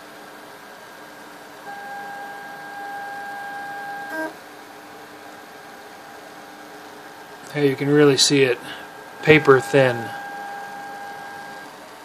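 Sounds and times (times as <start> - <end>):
faint steady hum: 0.1 - 12.0
stepper motors whining: 1.7 - 4.4, 9.2 - 11.7.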